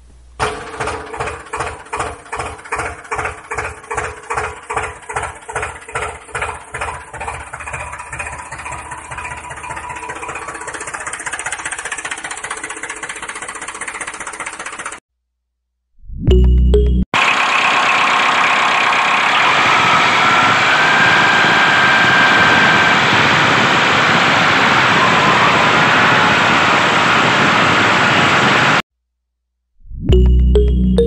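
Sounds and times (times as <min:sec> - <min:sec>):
tractor engine chugging: 0:00.4 - 0:15.0, 0:17.2 - 0:22.6.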